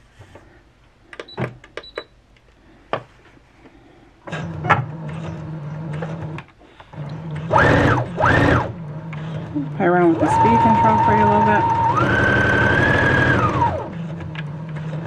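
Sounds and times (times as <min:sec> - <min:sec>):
sewing machine motor and needle: 0:04.3 - 0:15.0.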